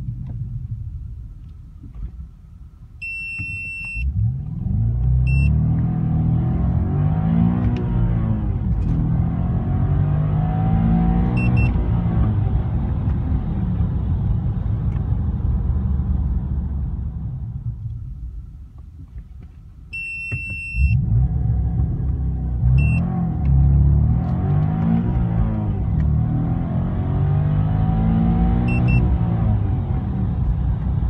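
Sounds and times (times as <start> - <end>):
car engine revving: 4.0 - 17.5, 20.8 - 31.0
electronic beeps: 5.3 - 5.6, 22.8 - 23.0, 28.7 - 29.1.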